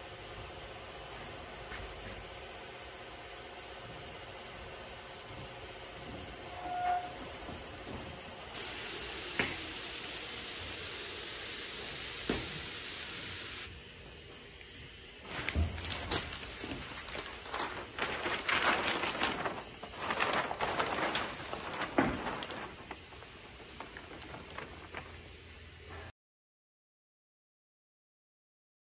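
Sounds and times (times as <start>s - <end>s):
glue gun spraying hiss: 8.6s - 13.7s
paper crinkling and rustling: 15.3s - 25.4s.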